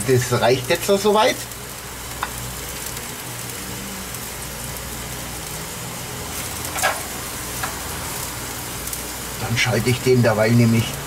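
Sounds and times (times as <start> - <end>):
electric fan humming: 0.0 - 11.0
meat sizzling on a grill: 0.0 - 11.0
metal tongs clicking on grill: 6.6 - 7.8.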